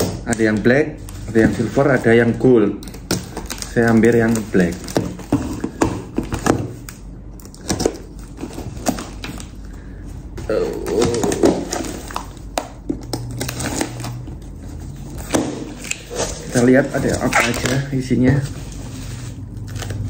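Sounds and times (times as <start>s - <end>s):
box handling clicks and crinkles: 0.3s - 9.7s, 10.8s - 20.0s.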